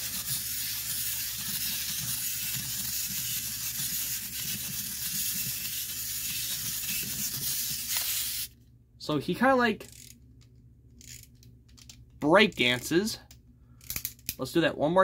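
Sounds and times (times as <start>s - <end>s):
clockwork motor whirring buzz: 0.0s - 8.5s.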